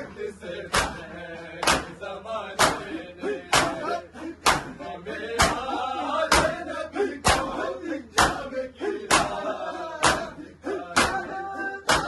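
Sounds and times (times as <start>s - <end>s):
man chanting a lament: 0.0s - 12.0s
palms slapping chests: 0.7s - 2.0s, 2.6s - 2.9s, 3.5s - 4.8s, 5.4s - 5.7s, 6.3s - 6.6s, 7.2s - 9.4s, 10.0s - 12.0s.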